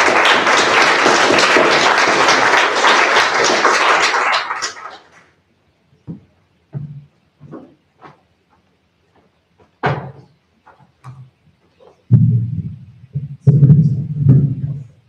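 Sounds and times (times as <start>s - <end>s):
thump: 9.8s - 10.3s
microphone handling rumble: 12.1s - 14.9s.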